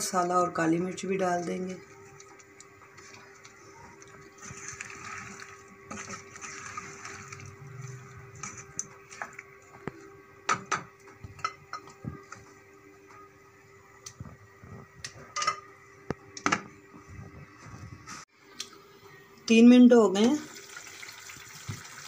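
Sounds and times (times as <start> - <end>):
spatula stirring vegetables in pan: 1.2 - 10.0.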